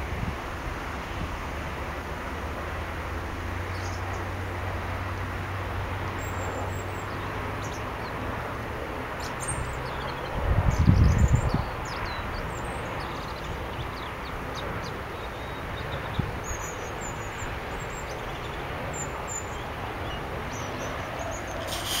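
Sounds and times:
steady rushing noise: 0:00.0 - 0:22.0
small birds chirping: 0:06.2 - 0:08.4, 0:09.2 - 0:22.0.

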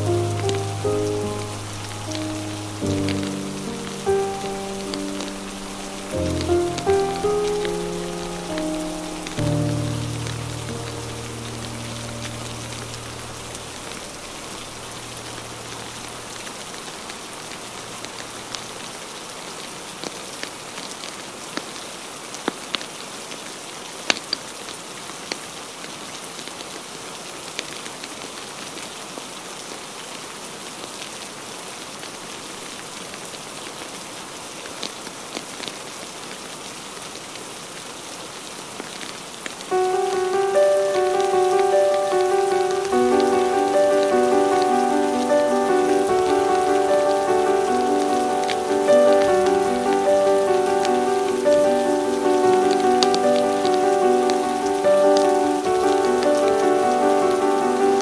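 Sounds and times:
soft background music: 0:00.0 - 0:16.1, 0:39.8 - 0:58.0
steady rain falling: 0:00.0 - 0:58.0.

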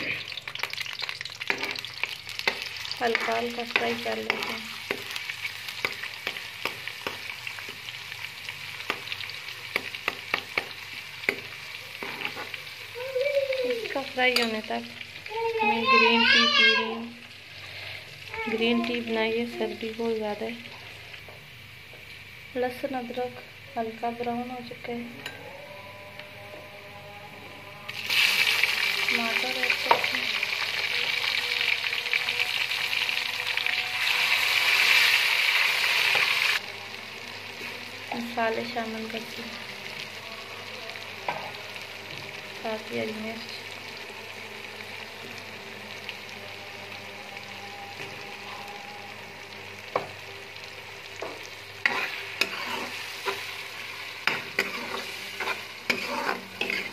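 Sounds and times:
paste sizzling in hot oil: 0:00.0 - 0:23.4, 0:27.9 - 0:40.2, 0:49.9 - 0:56.9.

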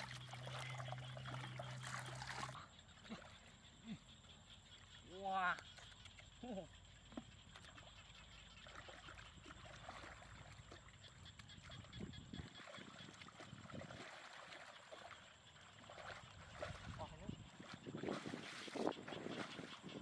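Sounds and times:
hands splashing in muddy puddle: 0:12.6 - 0:15.2, 0:15.8 - 0:19.7.

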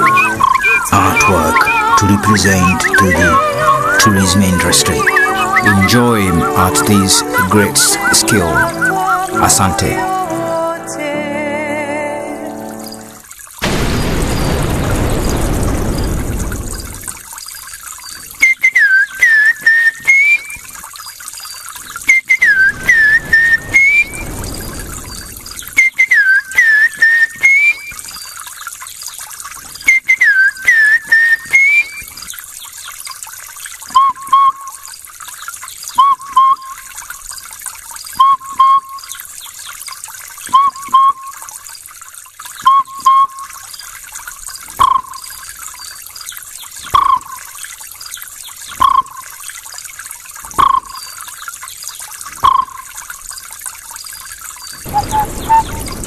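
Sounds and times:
man whistling bird calls: 0:00.0 - 0:10.0, 0:18.4 - 0:20.6, 0:22.0 - 0:24.3, 0:25.6 - 0:28.0, 0:29.8 - 0:32.1, 0:33.9 - 0:34.8, 0:35.9 - 0:36.8, 0:38.2 - 0:39.2, 0:40.4 - 0:41.4, 0:42.6 - 0:43.5, 0:54.8 - 0:56.0.

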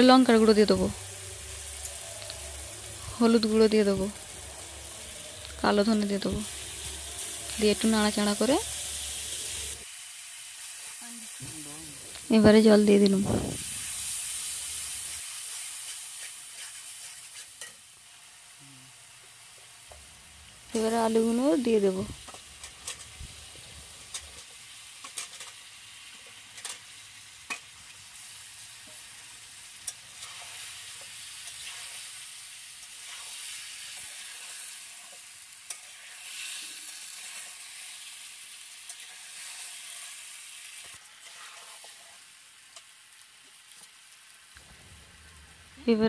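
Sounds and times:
vegetables sizzling in a pan: 0:00.0 - 0:46.0
metal spatula stirring: 0:15.4 - 0:17.8, 0:29.9 - 0:32.1, 0:41.2 - 0:42.2.

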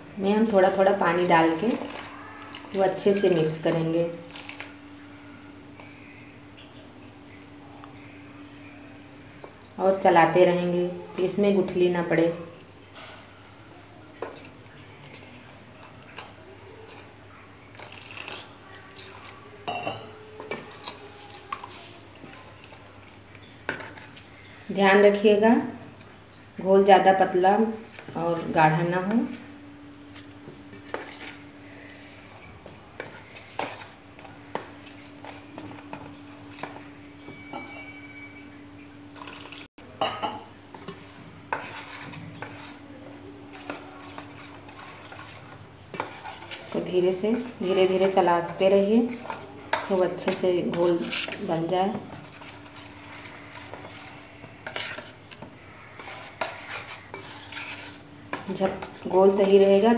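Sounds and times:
spoon stirring thick batter: 0:00.4 - 0:59.9
spoon clinking against bowl: 0:19.6 - 0:21.0.

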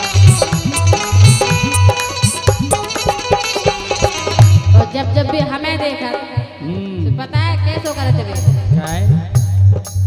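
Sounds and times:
jingling percussion: 0:00.0 - 0:05.4
harmonium: 0:00.0 - 0:08.8
hand drum beating: 0:00.0 - 0:10.0
person singing: 0:04.7 - 0:09.3.

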